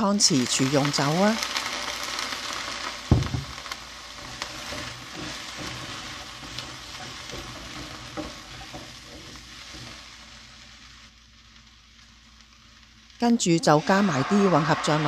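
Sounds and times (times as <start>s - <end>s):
meat sizzling in a wok: 0.0s - 15.0s
thump: 3.1s - 3.6s
metal spatula stirring in wok: 4.0s - 11.0s.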